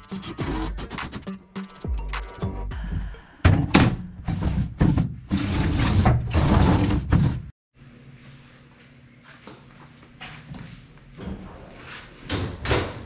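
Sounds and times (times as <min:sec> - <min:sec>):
plastic tray scraping metal: 0:04.3 - 0:07.5.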